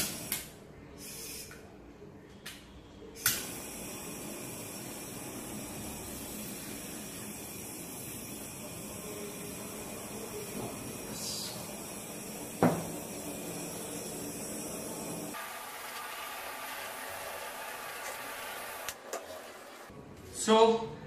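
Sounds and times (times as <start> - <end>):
blowtorch clicks: 3.2 - 3.6
blowtorch hissing: 3.2 - 19.9.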